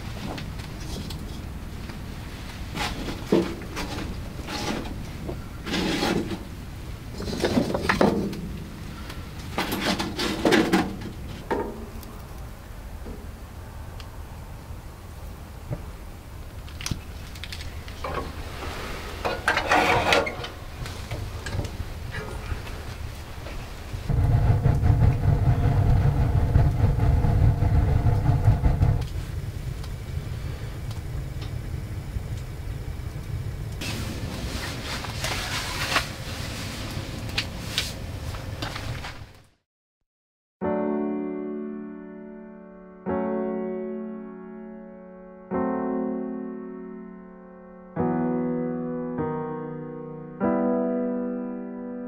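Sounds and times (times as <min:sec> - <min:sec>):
firewood rustles and knocks: 0:00.0 - 0:08.7, 0:09.4 - 0:12.1, 0:33.8 - 0:39.5
wood stove fire rumbling: 0:00.0 - 0:39.5.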